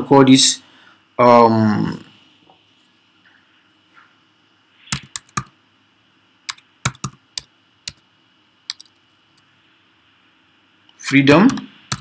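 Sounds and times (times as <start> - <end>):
computer keyboard typing: 4.9 - 5.5, 6.5 - 8.0, 8.7 - 9.0, 11.3 - 12.0.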